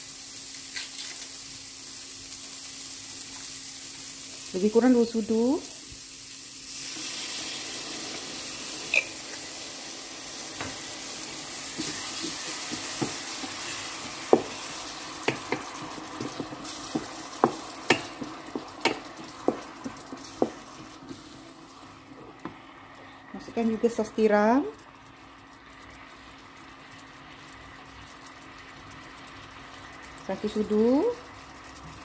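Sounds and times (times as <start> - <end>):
food sizzling in hot oil: 0.0 - 32.0
sauce pouring: 5.9 - 23.0
spatula knocking and scraping pan: 11.7 - 21.2.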